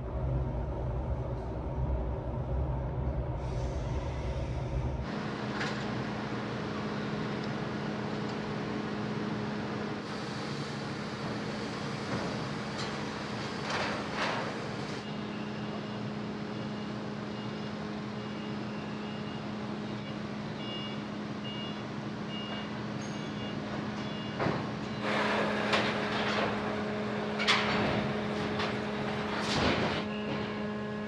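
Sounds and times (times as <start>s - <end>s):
low machinery hum: 0.0s - 31.0s
reversing alarm beeps: 15.0s - 25.1s.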